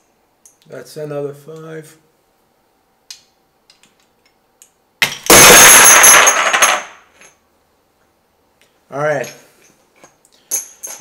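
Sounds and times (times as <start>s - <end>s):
metal washers crashing down: 5.0s - 7.3s.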